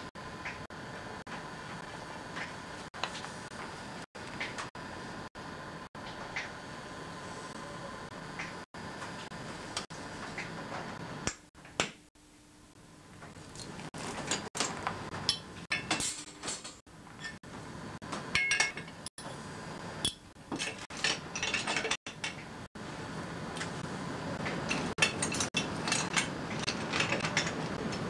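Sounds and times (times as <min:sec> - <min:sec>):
metal tools clinking on workbench: 0:13.5 - 0:17.4, 0:18.3 - 0:19.0, 0:20.5 - 0:22.4, 0:24.7 - 0:27.7.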